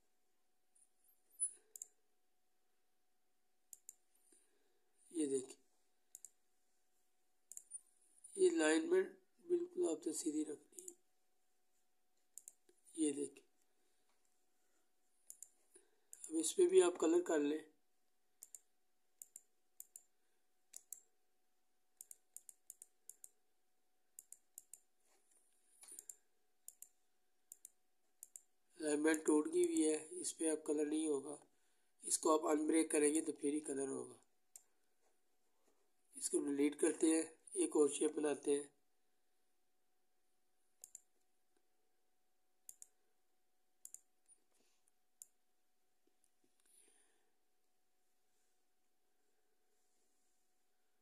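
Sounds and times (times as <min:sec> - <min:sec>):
computer mouse clicks: 0:01.4 - 0:02.0, 0:03.7 - 0:04.4, 0:06.1 - 0:06.4, 0:07.5 - 0:07.8, 0:10.7 - 0:11.0, 0:12.3 - 0:12.8, 0:15.2 - 0:16.3, 0:18.4 - 0:20.1, 0:20.7 - 0:21.1, 0:22.0 - 0:23.4, 0:24.2 - 0:24.9, 0:25.7 - 0:28.5, 0:40.8 - 0:41.2, 0:42.6 - 0:43.0, 0:43.8 - 0:44.1.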